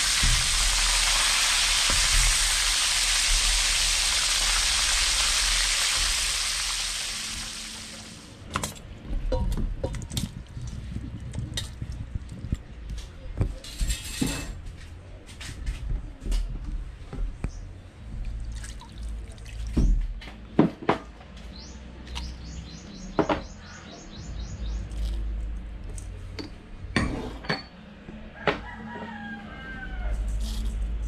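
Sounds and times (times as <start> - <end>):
bird chirping: 21.5 - 25.1
ceramic dishes clinking on steel: 26.4 - 27.7.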